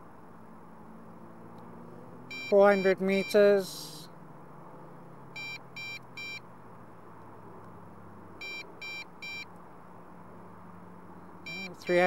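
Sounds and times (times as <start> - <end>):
electronic alert beeps: 2.3 - 3.4, 5.4 - 6.4, 8.4 - 9.4, 11.5 - 12.0.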